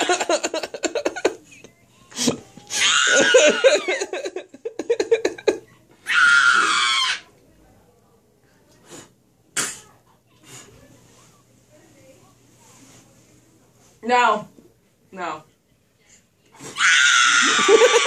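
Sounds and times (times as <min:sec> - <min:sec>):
girl giggling: 0:00.0 - 0:02.4, 0:03.1 - 0:05.7
girl screeching: 0:02.7 - 0:03.6, 0:06.0 - 0:07.3.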